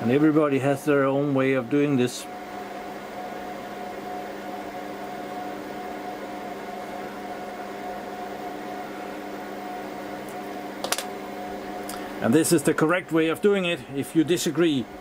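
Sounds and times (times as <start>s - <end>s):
cooling fans humming: 0.0s - 15.0s.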